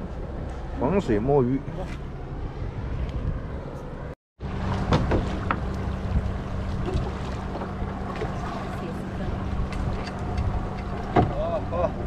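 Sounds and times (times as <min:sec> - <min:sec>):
wind noise: 0:02.4 - 0:07.8
boat engine running: 0:04.4 - 0:12.0.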